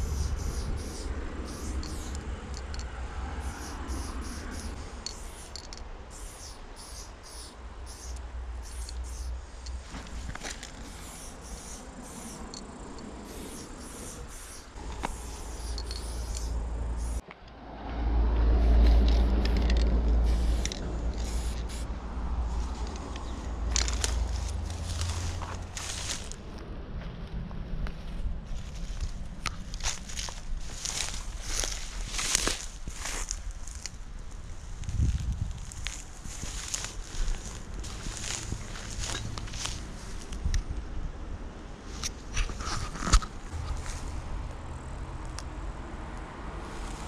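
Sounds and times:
spray can hissing: 0.0 - 2.8, 3.4 - 9.4, 10.6 - 17.2, 18.6 - 21.9.

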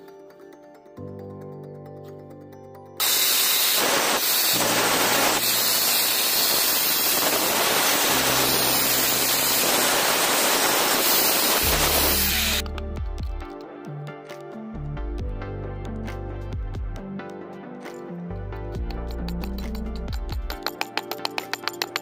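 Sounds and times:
angle grinder cutting wood: 3.0 - 12.6.

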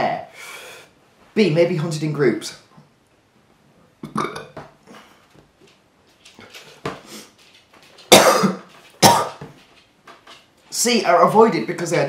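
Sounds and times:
man breathing: 0.3 - 1.0
man's burp-like throat sounds: 4.0 - 4.8, 8.1 - 9.4.

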